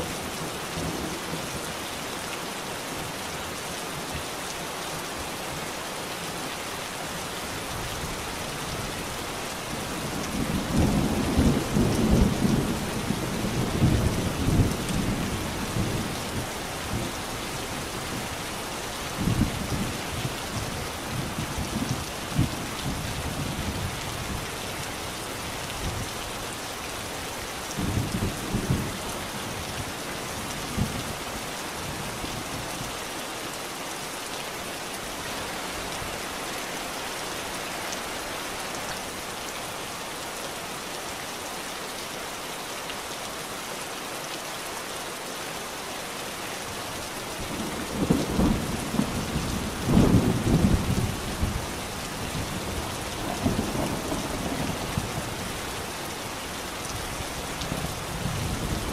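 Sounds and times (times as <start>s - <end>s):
heavy rain hissing: 0.0s - 58.9s.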